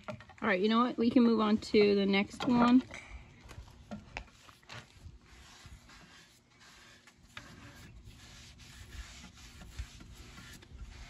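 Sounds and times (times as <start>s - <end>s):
cloth rag rubbing wood: 4.3s - 11.0s.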